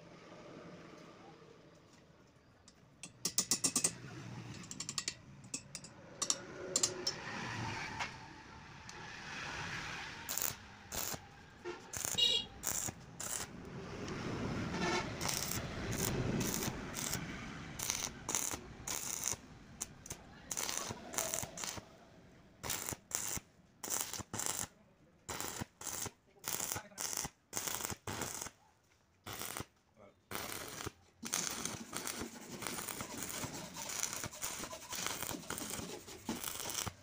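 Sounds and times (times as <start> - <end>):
welding arc crackling: 10.2 - 13.7, 15.1 - 21.9, 22.6 - 24.7, 25.3 - 28.5, 29.3 - 29.7, 30.3 - 37.0.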